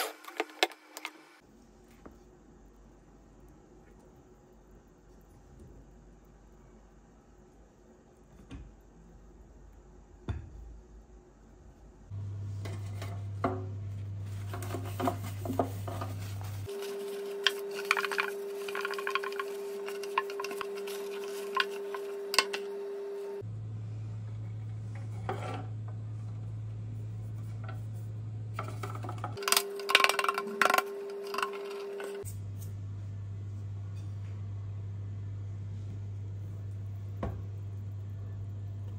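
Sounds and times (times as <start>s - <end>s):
paper towel rubbing metal pan: 14.2s - 22.6s.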